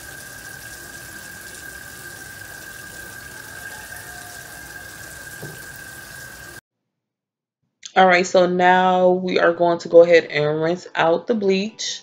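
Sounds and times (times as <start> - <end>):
faucet water splashing into sink: 0.0 - 6.6
high whistling tone: 3.0 - 5.2.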